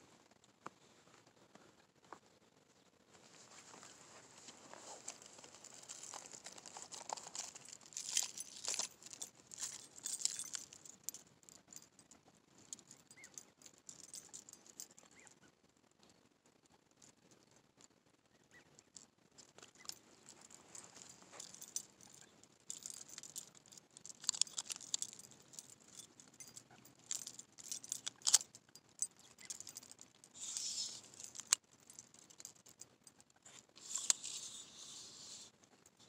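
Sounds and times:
rustling of fishing gear: 0:03.1 - 0:11.9, 0:19.6 - 0:35.6
metallic clicks and jingles: 0:04.9 - 0:15.3, 0:19.4 - 0:35.0.

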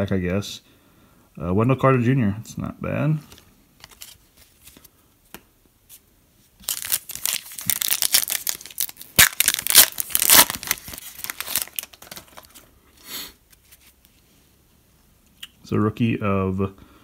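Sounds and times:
foil wrapper crinkling: 0:06.6 - 0:12.7.

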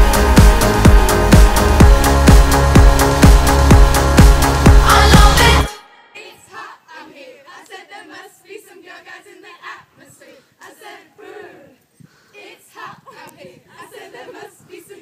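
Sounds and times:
overlapping voices of group: 0:04.2 - 0:15.0.

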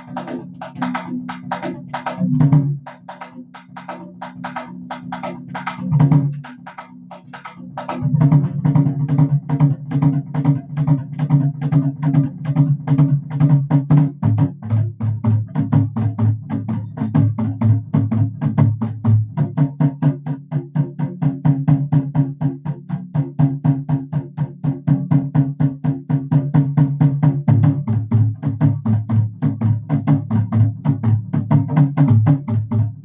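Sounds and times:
deeper drum beat: 0:00.0 - 0:33.0
kettle drums fast rhythm: 0:00.0 - 0:33.0.

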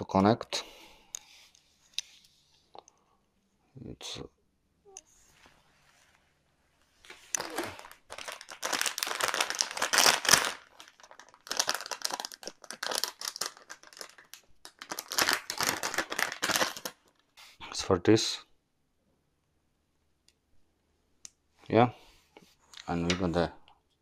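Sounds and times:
plastic packaging crinkling: 0:07.0 - 0:17.3.

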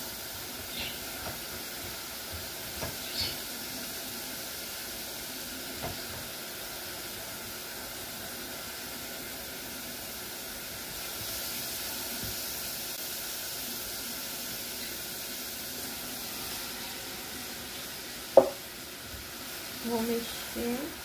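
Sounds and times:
garlic and onion sizzling in oil: 0:00.0 - 0:21.0.

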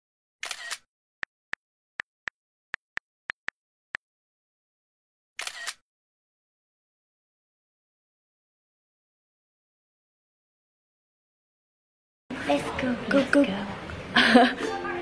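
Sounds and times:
camera shutter sound: 0:00.4 - 0:00.9, 0:05.4 - 0:05.8.

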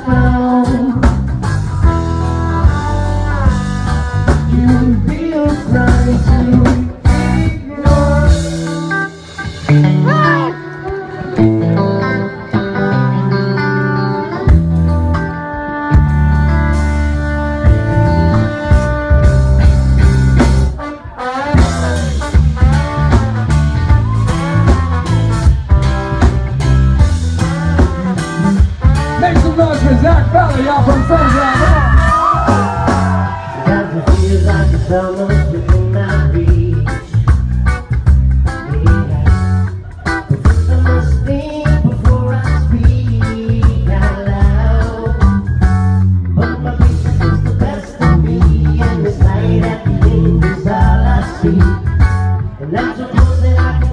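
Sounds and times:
man singing into a microphone: 0:00.0 - 0:09.2, 0:29.1 - 0:37.5, 0:38.4 - 0:39.5, 0:40.2 - 0:45.6, 0:46.4 - 0:53.9
live ska band playing: 0:00.0 - 0:53.9.

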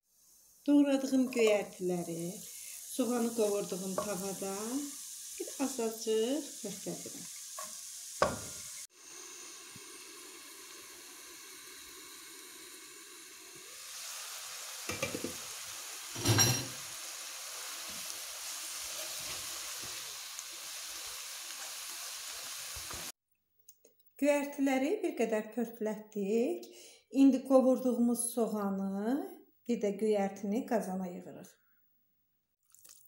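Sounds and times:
greens sizzling in butter: 0:00.0 - 0:23.2.

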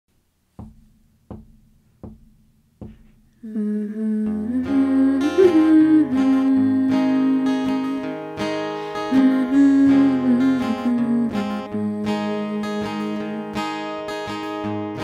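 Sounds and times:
acoustic guitar plucked notes: 0:00.2 - 0:15.0
strummed guitar chords: 0:00.6 - 0:15.0
person humming a melody: 0:03.4 - 0:08.2, 0:09.1 - 0:13.6.

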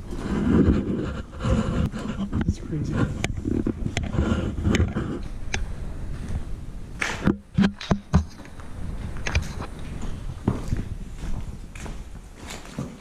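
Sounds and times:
footsteps crunching over rubble: 0:07.4 - 0:13.0.

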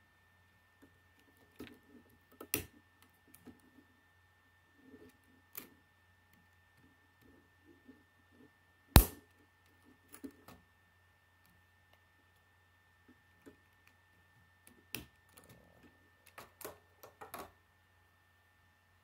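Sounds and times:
plastic pieces snapping together: 0:09.0 - 0:09.4.

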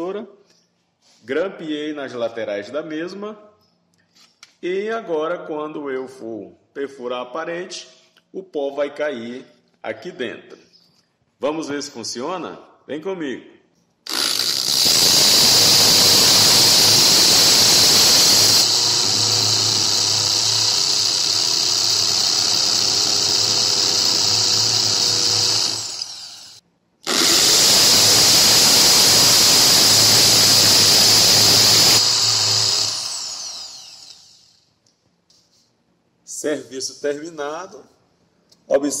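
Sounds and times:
electric drill whining: 0:14.1 - 0:34.6.

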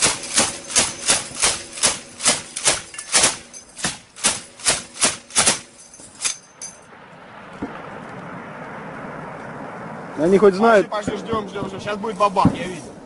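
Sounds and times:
gunshots: 0:00.0 - 0:06.3.

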